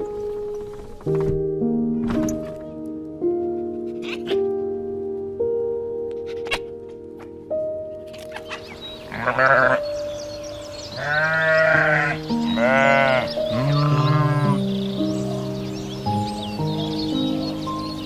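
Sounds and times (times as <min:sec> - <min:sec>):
sheep bleating: 0:04.0 - 0:04.5, 0:09.1 - 0:09.8, 0:11.0 - 0:14.6.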